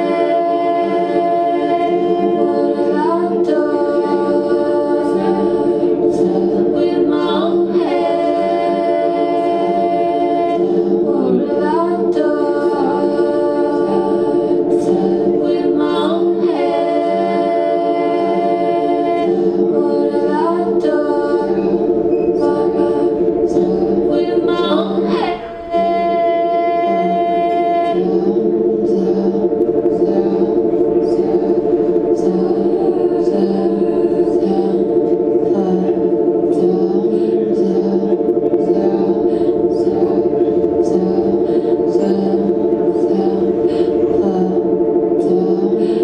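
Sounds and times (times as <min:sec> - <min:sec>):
looped vocal harmonies: 0:00.0 - 0:46.0
woman singing long notes: 0:00.0 - 0:46.0.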